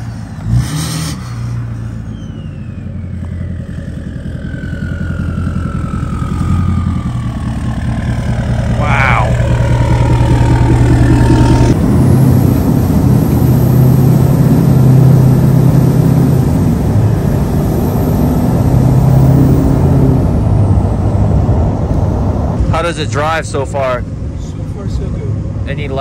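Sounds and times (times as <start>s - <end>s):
diesel engine drone: 0.0s - 26.0s
turbo whistle: 2.0s - 4.0s.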